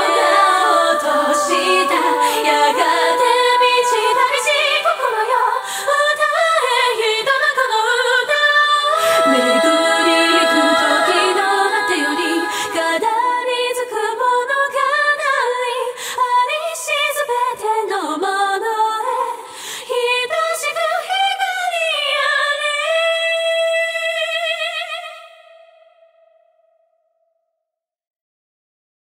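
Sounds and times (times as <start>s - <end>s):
unaccompanied choral singing: 0.0s - 15.7s.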